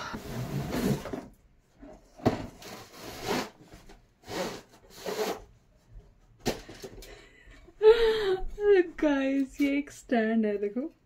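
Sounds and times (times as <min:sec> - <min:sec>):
cardboard scraping and rustling: 0:00.2 - 0:05.5.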